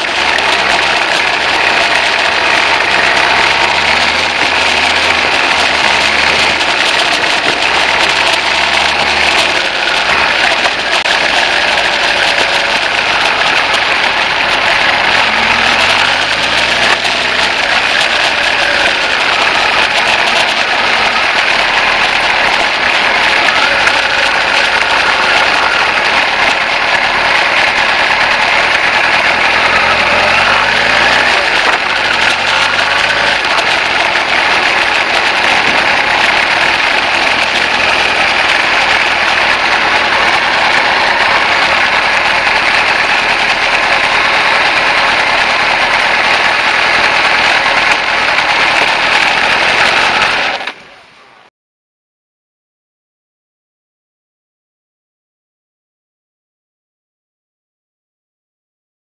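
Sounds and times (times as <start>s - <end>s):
motorcycle engine accelerating: 0.0s - 50.6s.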